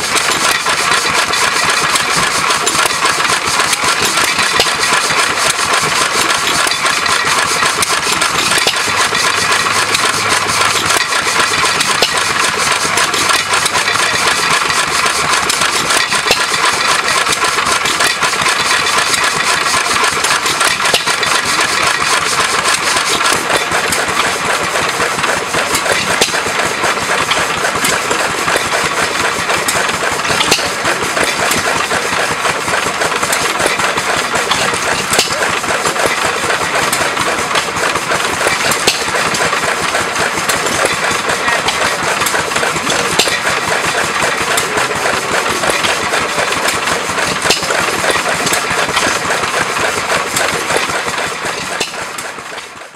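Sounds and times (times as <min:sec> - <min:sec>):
stationary engine clattering: 0:00.0 - 0:52.9.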